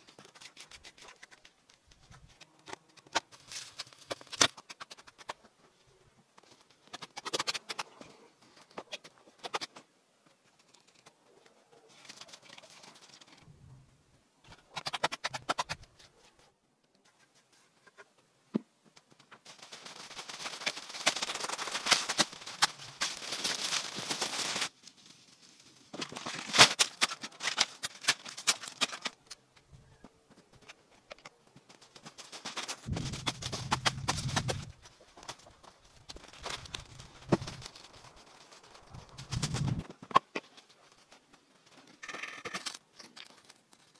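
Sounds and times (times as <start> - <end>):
footsteps through dry leaves: 19.5 - 25.1, 36.1 - 39.8.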